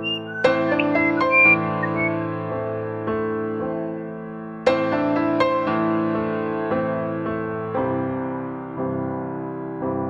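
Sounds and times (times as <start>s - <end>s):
slow keyboard melody: 0.0s - 7.6s.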